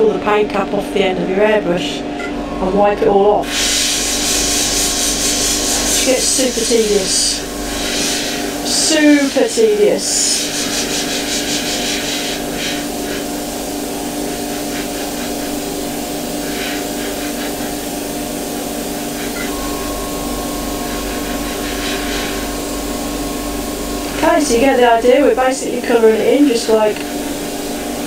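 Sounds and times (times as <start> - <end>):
mechanical hum: 0.0 - 28.0
airbrush air hiss: 3.4 - 25.3, 25.9 - 28.0
steady higher tone: 5.6 - 10.4, 18.6 - 28.0
low hum: 19.2 - 28.0.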